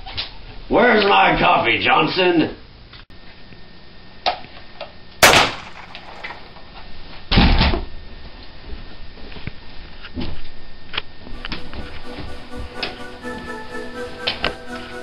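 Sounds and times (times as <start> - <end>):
sharp bang: 5.2 - 6.5.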